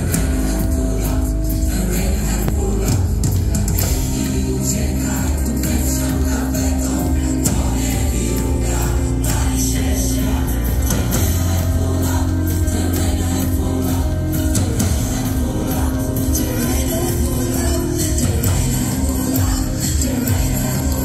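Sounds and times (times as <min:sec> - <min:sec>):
choir singing: 0:00.0 - 0:21.0
live band music: 0:00.0 - 0:21.0
strong steady bass: 0:00.0 - 0:21.0.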